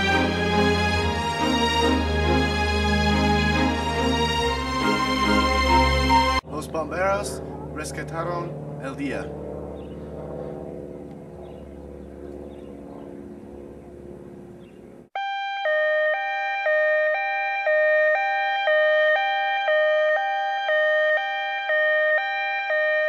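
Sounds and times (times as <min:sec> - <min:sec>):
two-tone electronic siren: 0:00.0 - 0:06.4, 0:15.2 - 0:23.0
low background hum: 0:06.4 - 0:15.1.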